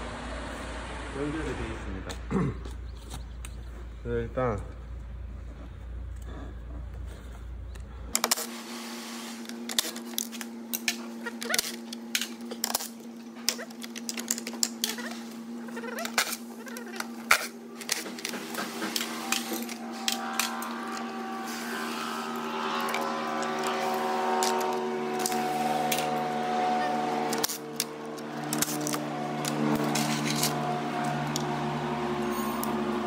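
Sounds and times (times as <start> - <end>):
steady pitched hum: 0.0 - 33.0
metal tools clicking and clinking: 9.7 - 15.2, 15.8 - 21.1, 27.3 - 31.5.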